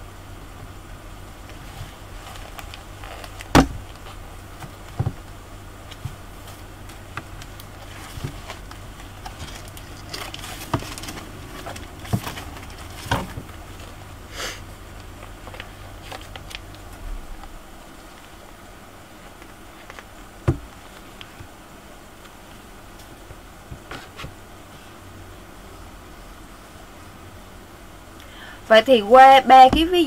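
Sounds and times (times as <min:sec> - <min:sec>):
low electrical hum: 0:00.0 - 0:30.0.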